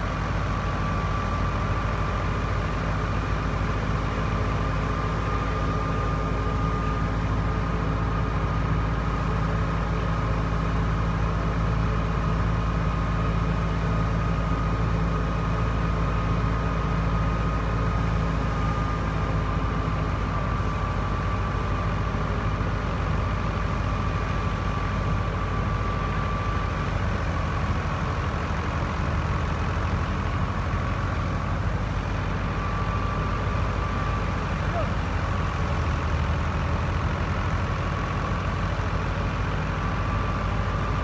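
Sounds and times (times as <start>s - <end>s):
diesel tractor engine running: 0.0s - 41.0s.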